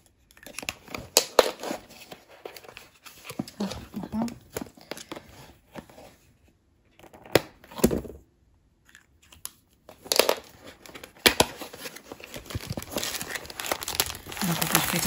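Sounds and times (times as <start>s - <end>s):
paper and plastic crinkling: 0.2s - 6.1s, 9.2s - 15.0s
packaging clicks and knocks: 9.9s - 15.0s.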